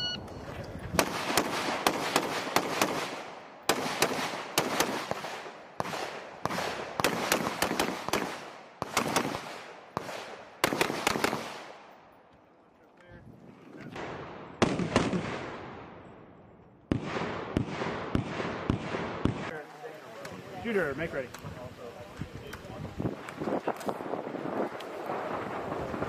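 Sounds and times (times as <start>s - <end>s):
shot timer beep: 0.0s - 0.4s
gunshots: 0.9s - 12.0s, 13.9s - 16.2s, 16.9s - 19.6s.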